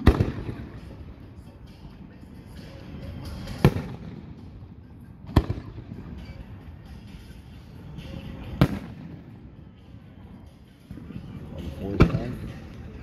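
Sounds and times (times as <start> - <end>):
fireworks booms: 0.0 - 0.8, 5.2 - 6.1.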